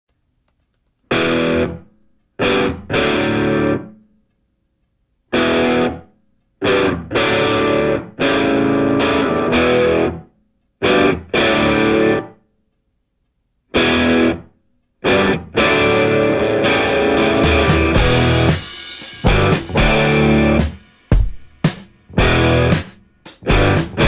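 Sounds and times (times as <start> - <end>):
distorted electric guitar chords: 1.1 - 3.9, 5.3 - 10.2, 10.8 - 12.4, 13.7 - 20.8, 22.1 - 24.0.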